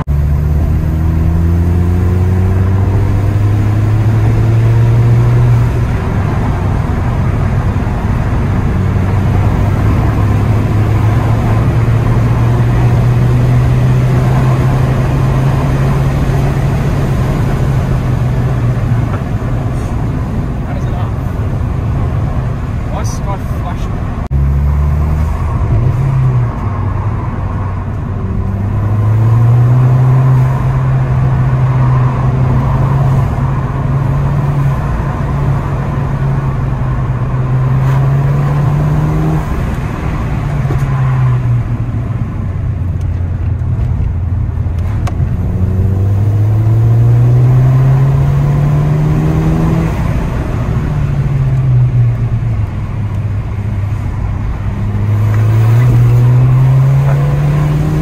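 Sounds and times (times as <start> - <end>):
car engine accelerating: 0.0 - 58.0
road and tyre noise: 0.0 - 58.0.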